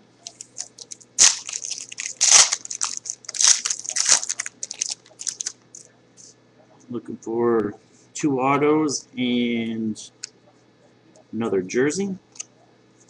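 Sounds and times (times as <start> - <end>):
foil wrapper crackling: 0.2 - 5.9.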